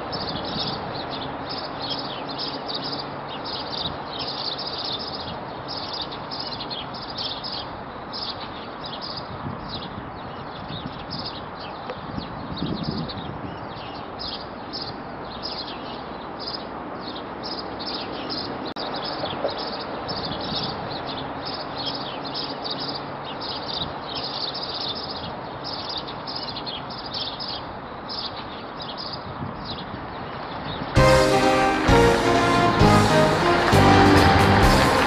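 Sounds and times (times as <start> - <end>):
small birds chirping: 0.0 - 31.0
city traffic hum: 0.0 - 35.0
music: 31.0 - 35.0.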